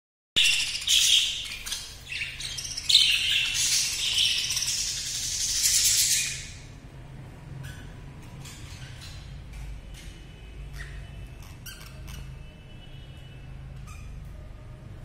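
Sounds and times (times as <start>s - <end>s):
budgerigars chattering: 0.4s - 6.6s.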